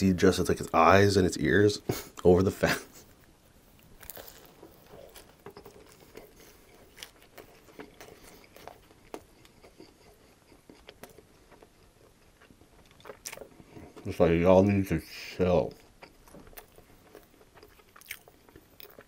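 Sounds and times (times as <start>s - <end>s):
crunchy chewing: 3.0s - 14.2s, 15.0s - 19.0s.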